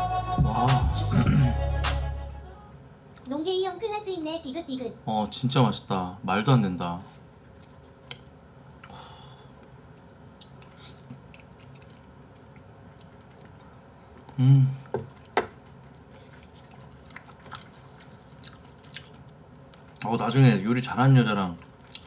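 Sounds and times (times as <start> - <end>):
chewing: 9.6 - 14.3, 15.1 - 20.2, 21.5 - 22.0.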